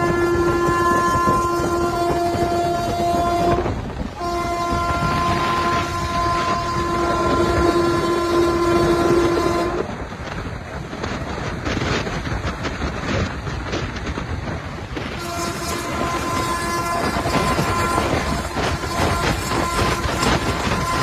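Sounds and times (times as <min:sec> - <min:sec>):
train horn: 0:00.0 - 0:10.2, 0:15.0 - 0:21.0
train wheels clattering on track: 0:00.0 - 0:21.0.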